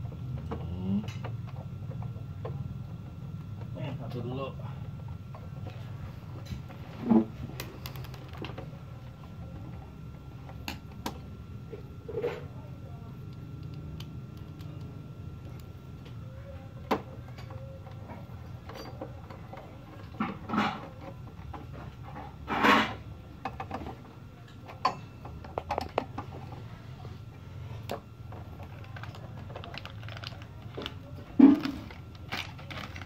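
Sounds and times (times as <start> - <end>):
low steady hum: 0.0 - 33.0.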